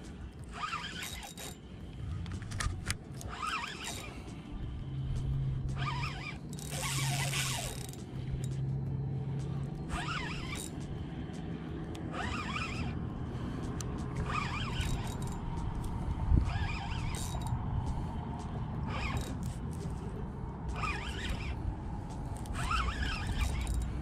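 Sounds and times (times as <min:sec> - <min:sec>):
steady low hum: 0:00.0 - 0:24.0
fishing reel whirring: 0:00.2 - 0:08.7, 0:09.5 - 0:11.4, 0:12.0 - 0:24.0.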